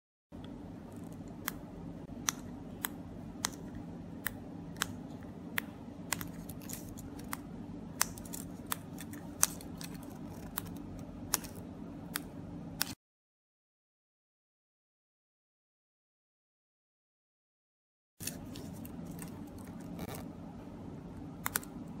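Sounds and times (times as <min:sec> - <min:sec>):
steady low hum: 0:00.3 - 0:13.0, 0:18.2 - 0:22.0.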